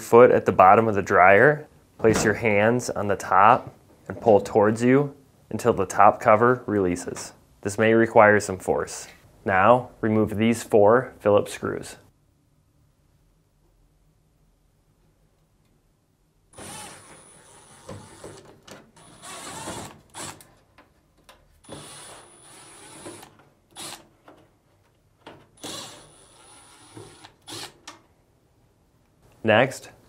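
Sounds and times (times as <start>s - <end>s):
cordless drill whining: 16.6s - 18.4s, 19.0s - 20.4s, 21.6s - 24.0s, 25.6s - 27.8s.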